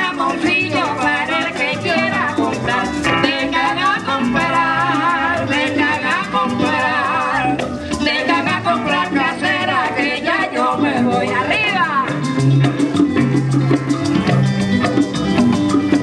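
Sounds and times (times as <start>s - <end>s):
person singing: 0.0s - 12.2s
live band playing: 0.0s - 16.0s.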